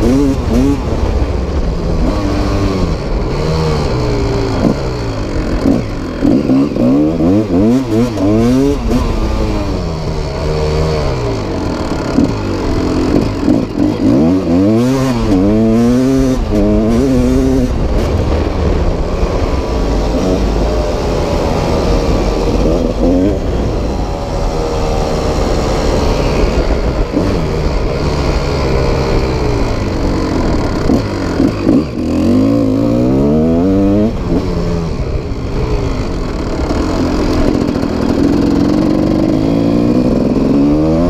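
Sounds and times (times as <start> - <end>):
dirt bike engine revving: 0.0 - 41.0.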